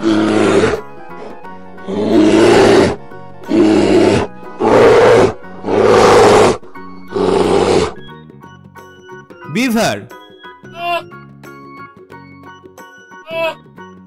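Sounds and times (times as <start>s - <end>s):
bear growling: 0.0s - 8.1s
soft background music: 0.0s - 14.0s.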